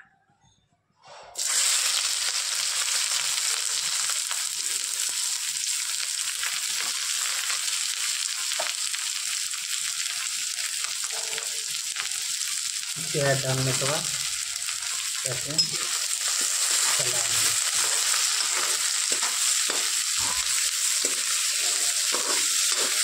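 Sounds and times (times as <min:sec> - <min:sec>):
onions sizzling in hot oil: 0:01.4 - 0:23.0.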